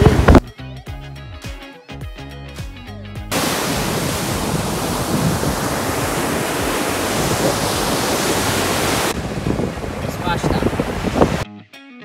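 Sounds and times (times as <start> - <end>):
background music: 0.4 - 3.4
ocean waves breaking: 3.3 - 11.4.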